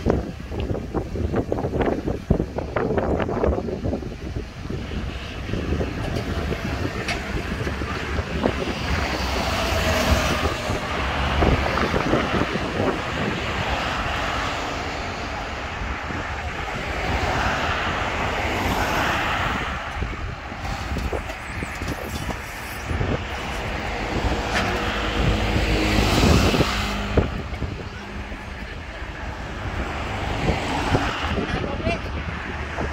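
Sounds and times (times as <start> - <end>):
roadside traffic: 0.0 - 32.9
wind buffeting microphone: 0.0 - 32.9
pickup truck passing: 4.6 - 32.9.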